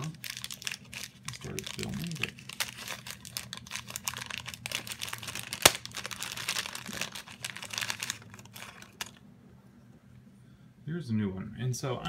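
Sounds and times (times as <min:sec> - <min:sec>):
packaging crinkling and tearing: 0:00.0 - 0:09.2.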